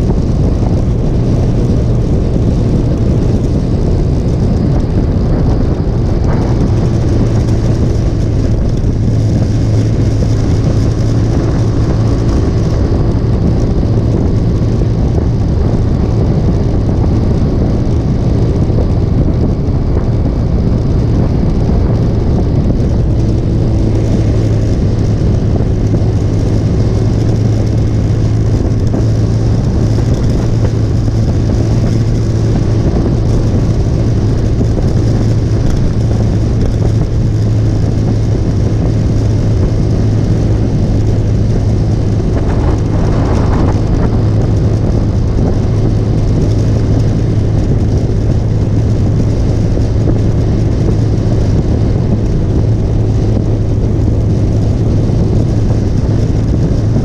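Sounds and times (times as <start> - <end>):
motorcycle engine cruising: 0.0 - 57.0
wind and road noise: 0.0 - 57.0.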